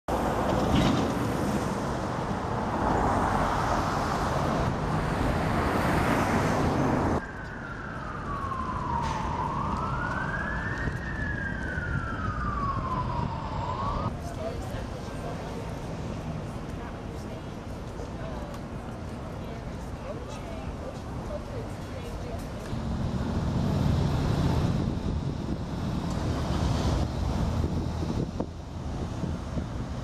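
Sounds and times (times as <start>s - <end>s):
street noise: 0.1s - 30.0s
emergency siren wailing: 7.2s - 14.1s.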